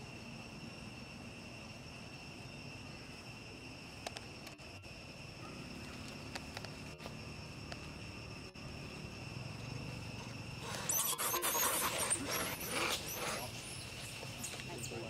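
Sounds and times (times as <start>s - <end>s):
insects droning: 0.0s - 15.0s
faint ticks: 4.0s - 4.6s.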